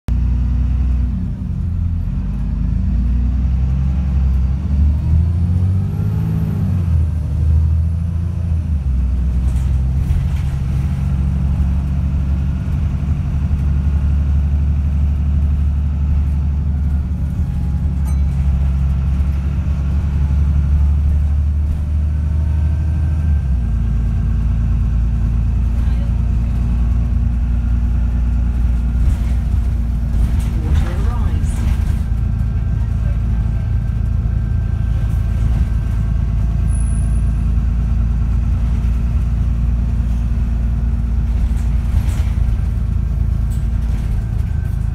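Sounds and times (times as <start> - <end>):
bus diesel engine under load: 0.1 - 44.9.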